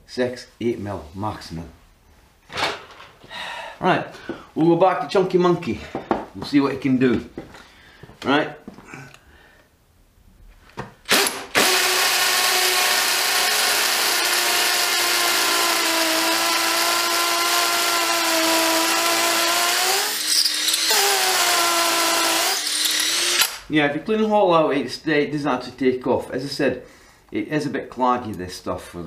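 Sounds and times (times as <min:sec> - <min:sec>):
impact driver motor whine: 0:11.1 - 0:23.6.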